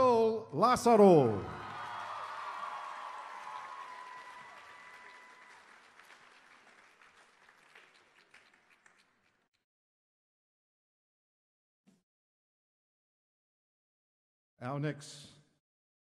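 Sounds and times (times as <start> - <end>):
audience applause: 1.4 - 9.5.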